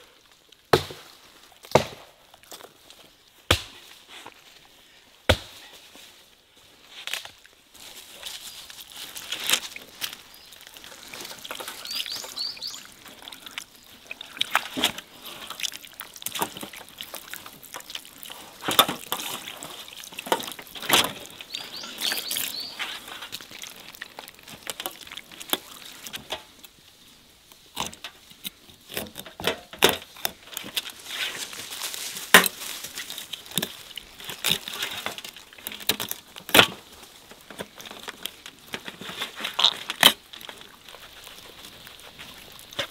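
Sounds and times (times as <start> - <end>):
water trickling and splashing: 8.6 - 27.8, 30.3 - 42.9.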